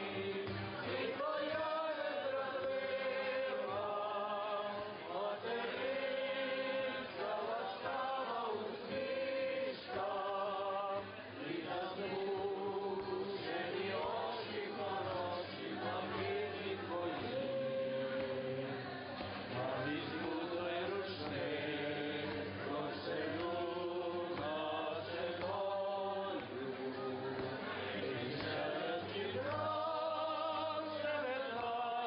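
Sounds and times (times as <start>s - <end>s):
group singing a hymn: 0.0s - 32.0s.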